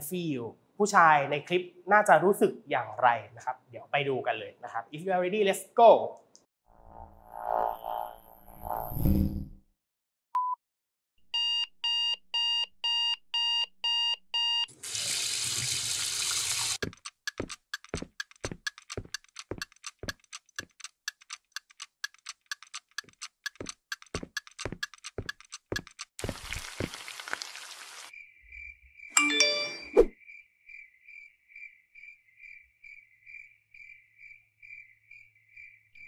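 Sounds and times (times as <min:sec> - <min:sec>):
alarm clock beeping: 0:11.4 - 0:14.7
clock ticking: 0:16.8 - 0:26.2.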